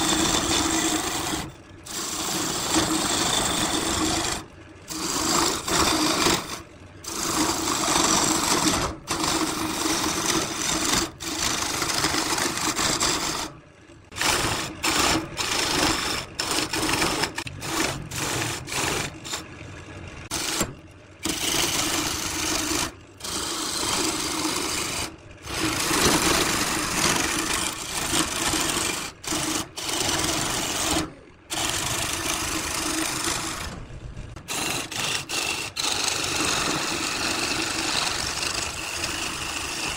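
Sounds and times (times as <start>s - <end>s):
turning tool scraping wood: 0.0s - 19.6s, 20.3s - 33.8s, 34.4s - 39.9s
wood lathe humming: 0.0s - 33.8s, 34.4s - 39.9s.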